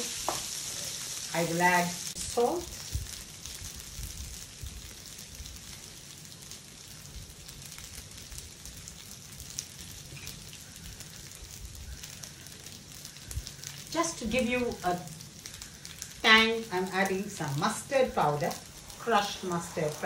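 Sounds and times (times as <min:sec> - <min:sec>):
noodles sizzling in oiled pan: 0:00.0 - 0:20.0.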